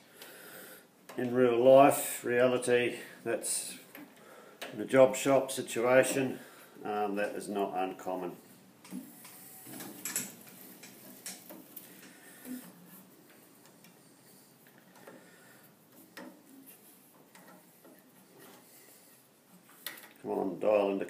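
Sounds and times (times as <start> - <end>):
light clicks and taps on metal: 15.9 - 18.8.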